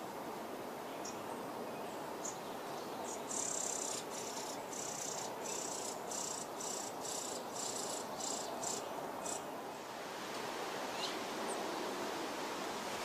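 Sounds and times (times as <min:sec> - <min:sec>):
faint bird chirp: 0:00.9 - 0:09.6, 0:10.9 - 0:11.6.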